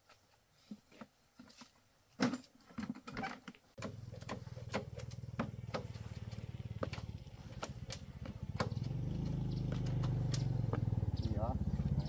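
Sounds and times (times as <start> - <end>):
small motorbike engine putter: 3.8 - 12.0.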